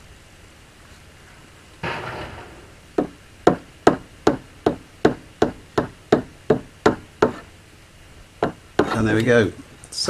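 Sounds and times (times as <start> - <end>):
hammer tapping on metal: 3.0 - 7.4, 8.4 - 9.0.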